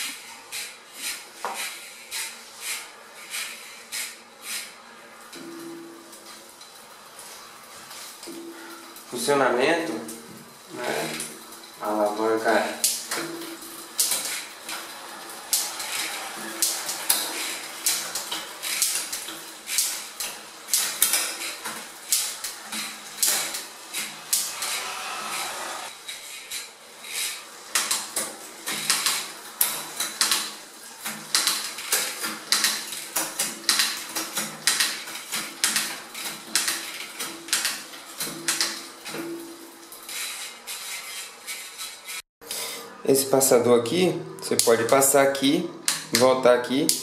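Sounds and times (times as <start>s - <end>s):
bicycle chain running: 13.8s - 27.2s.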